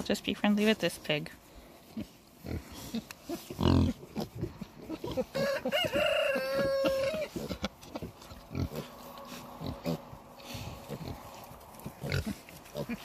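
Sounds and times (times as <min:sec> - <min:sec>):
pigs grunting and snuffling: 0:00.0 - 0:13.0
rooster crowing: 0:05.3 - 0:07.3.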